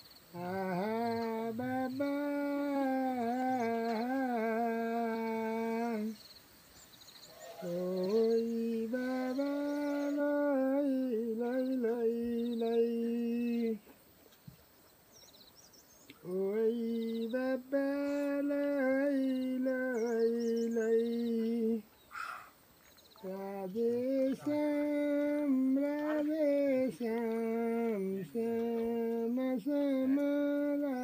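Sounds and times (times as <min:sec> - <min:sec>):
man singing a soft lullaby: 0:00.3 - 0:06.2, 0:07.4 - 0:14.0, 0:16.1 - 0:21.9, 0:23.2 - 0:31.0.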